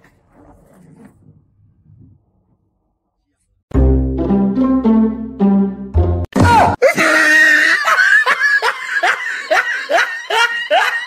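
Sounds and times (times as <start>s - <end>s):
person laughing hard: 6.8s - 11.0s.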